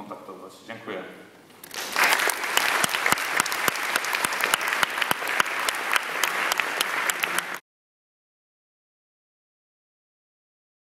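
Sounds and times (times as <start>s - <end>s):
audience applauding: 1.6s - 7.6s.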